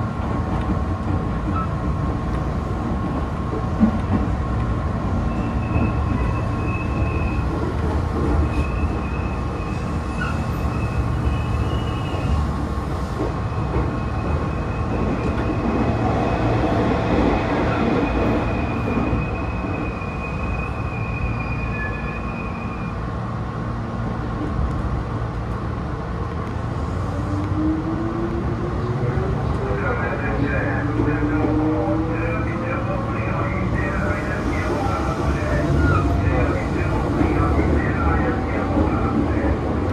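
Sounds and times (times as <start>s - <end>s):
train wheels rumbling on rail: 0.0s - 39.9s
high wheel squeals: 5.3s - 7.5s, 8.4s - 12.4s, 18.6s - 23.0s.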